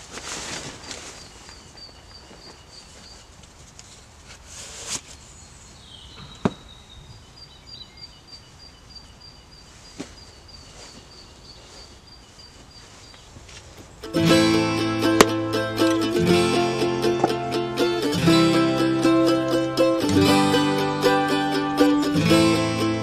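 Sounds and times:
sleeping bag rustling: 0.0 - 5.2.

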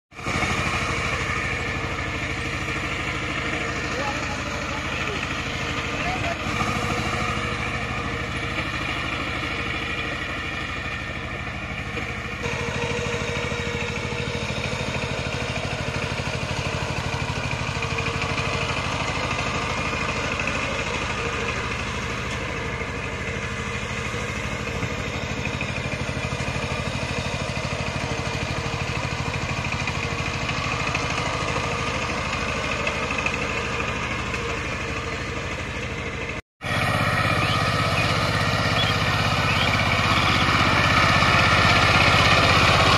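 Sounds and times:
diesel tiller engine running: 0.1 - 42.9.

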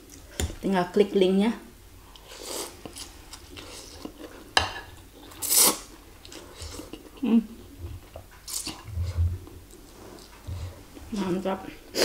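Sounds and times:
noodles being slurped: 5.3 - 7.0.

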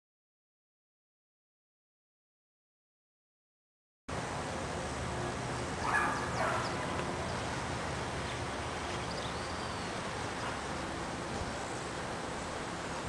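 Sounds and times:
steady background hiss: 4.1 - 13.0
dog barking: 5.8 - 6.9.

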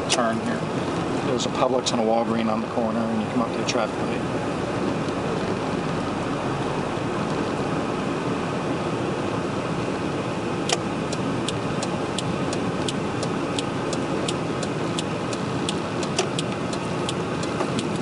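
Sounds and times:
engine and road noise: 0.0 - 18.0
turn signal flasher clicking: 10.6 - 18.0.

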